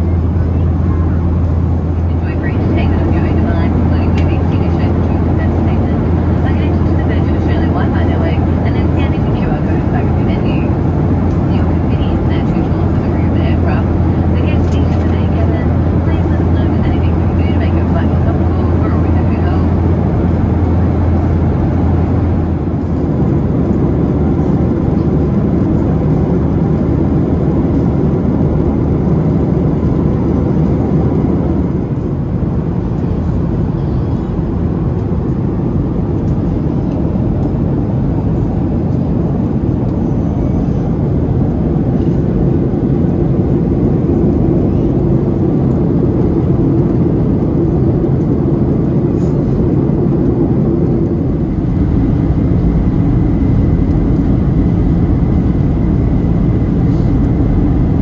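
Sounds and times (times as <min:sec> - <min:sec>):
vehicle drone from inside: 0:00.0 - 0:58.0
deep low hum: 0:41.2 - 0:58.0.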